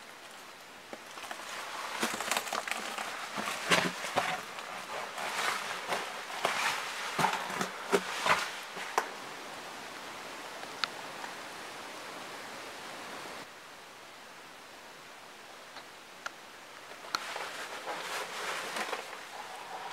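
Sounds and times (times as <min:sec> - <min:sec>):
footsteps on loose rocks: 0:00.0 - 0:09.2, 0:17.0 - 0:19.9
steady hiss: 0:00.0 - 0:19.9.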